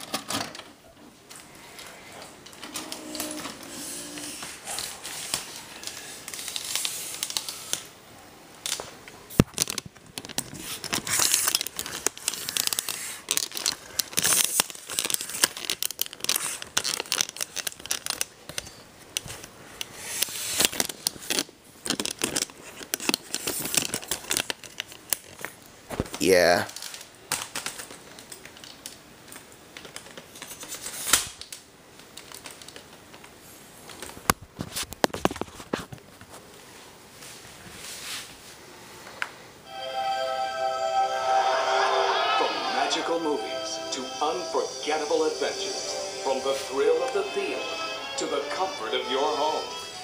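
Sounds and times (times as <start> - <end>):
rustling and crinkling: 0.0 - 7.9, 8.6 - 38.6.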